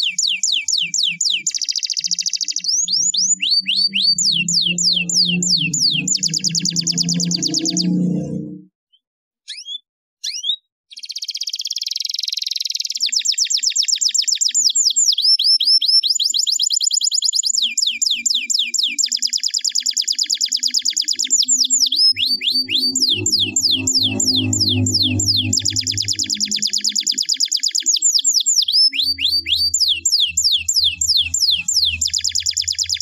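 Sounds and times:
canary singing: 0:00.0 - 0:33.0
low drone: 0:03.2 - 0:08.7, 0:21.5 - 0:27.1, 0:29.0 - 0:33.0.

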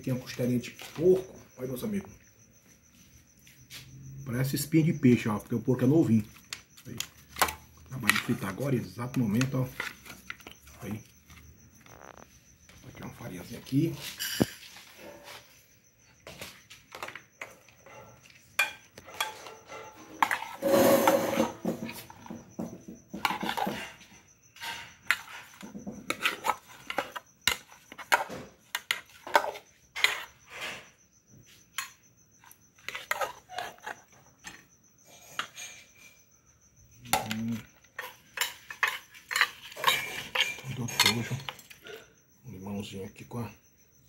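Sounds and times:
metal spoon scraping plastic bowl: 0:05.8 - 0:15.5, 0:16.4 - 0:22.4, 0:23.1 - 0:30.9, 0:32.4 - 0:36.0, 0:37.1 - 0:41.9.

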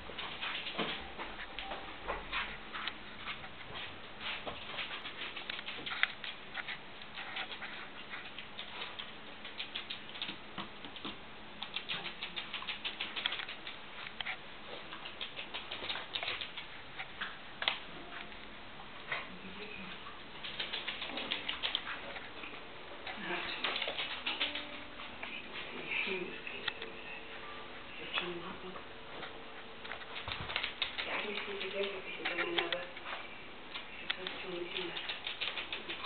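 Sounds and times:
dog claws clicking on wooden floor: 0:04.2 - 0:17.8, 0:20.4 - 0:22.5, 0:23.4 - 0:24.8, 0:29.8 - 0:36.0.

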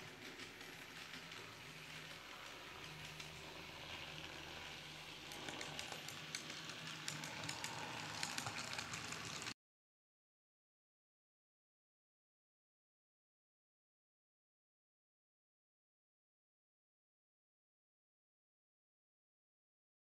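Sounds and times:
model train motor whir: 0:00.0 - 0:09.6
wheels clicking over rail joints: 0:00.0 - 0:09.6.

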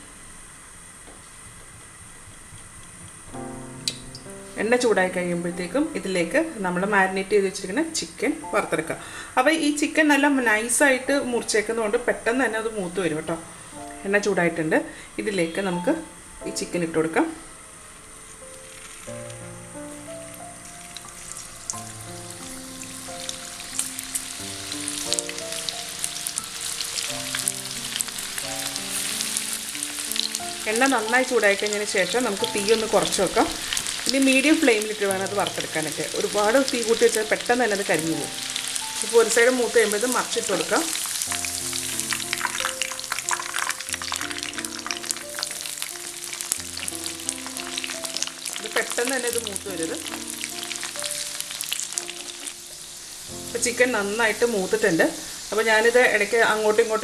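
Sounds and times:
soft background music: 0:02.4 - 0:57.0
chicken deep-frying in oil: 0:20.7 - 0:57.0.

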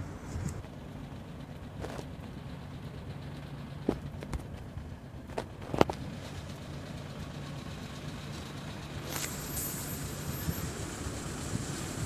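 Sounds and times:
street noise: 0:00.0 - 0:12.0
tram humming: 0:00.0 - 0:12.0
thin high whine: 0:09.0 - 0:12.0.

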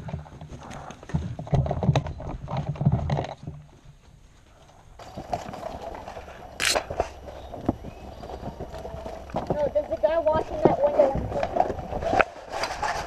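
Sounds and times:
clatter of gear: 0:00.0 - 0:03.9
footsteps on wooden boards and dirt: 0:00.0 - 0:13.0.

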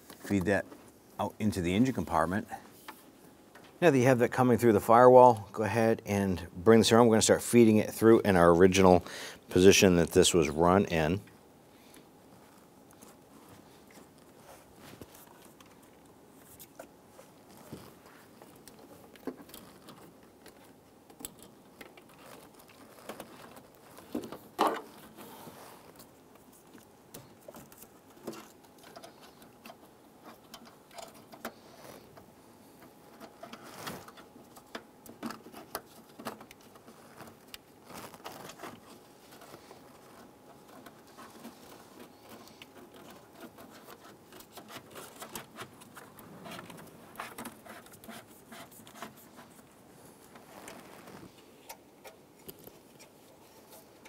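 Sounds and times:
cable rustling and scraping: 0:12.2 - 0:54.0.

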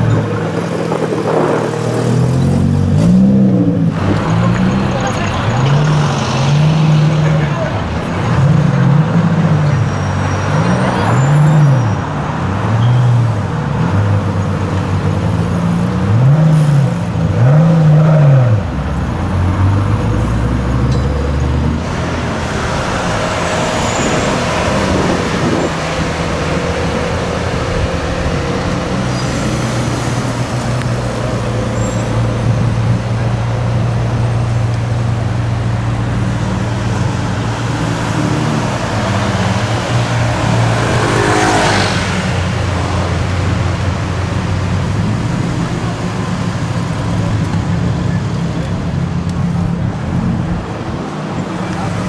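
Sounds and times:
car engines revving: 0:00.0 - 0:52.0.

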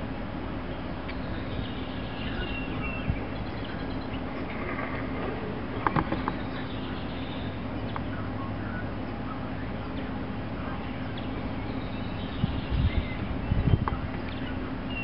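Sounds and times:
steady low hum: 0:00.0 - 0:15.0
bird chirps: 0:06.2 - 0:15.0.

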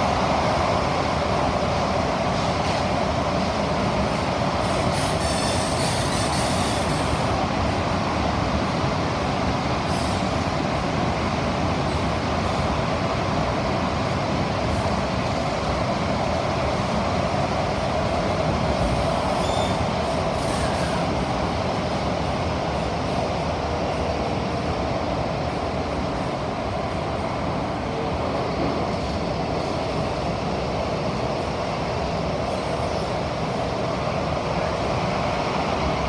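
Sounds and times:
constant rushing noise: 0:00.0 - 0:36.0
train wheels rumbling on rail: 0:00.0 - 0:36.0.

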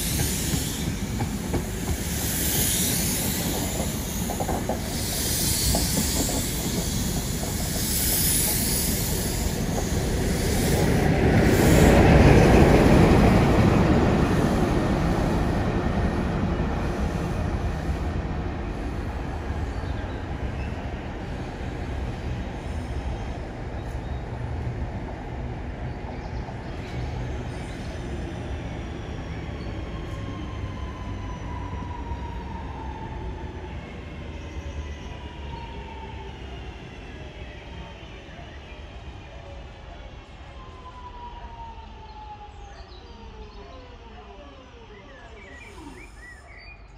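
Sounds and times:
diesel train passing: 0:00.0 - 0:46.9.

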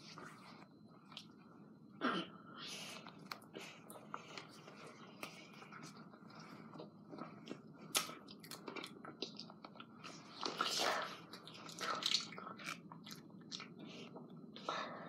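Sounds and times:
person chewing banana: 0:03.0 - 0:14.6.

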